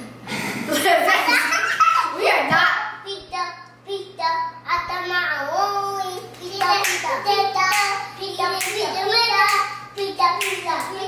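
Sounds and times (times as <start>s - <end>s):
hand claps: 6.3s - 8.0s, 8.6s - 8.8s, 9.4s - 11.0s.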